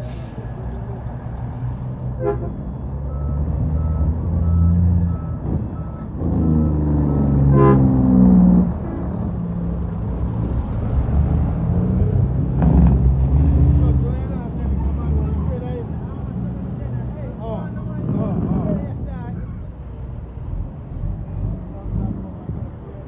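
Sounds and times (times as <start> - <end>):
truck diesel engine revving: 0.0 - 18.8
reversing alarm beeping: 2.4 - 7.5.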